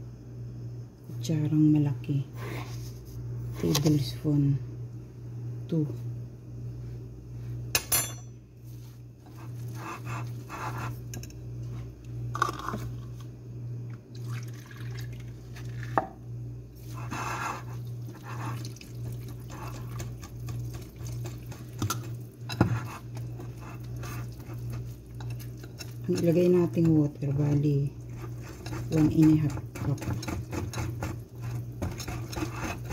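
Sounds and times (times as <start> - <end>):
steady low hum: 0.0 - 32.9
liquid pouring: 14.1 - 16.0.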